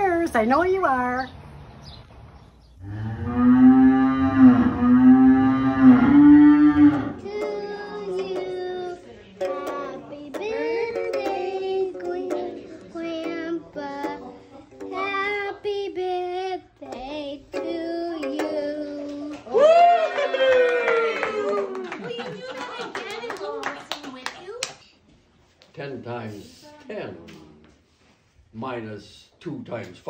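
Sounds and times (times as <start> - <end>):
toy guitar strumming: 6.8 - 19.3
child singing: 6.9 - 19.5.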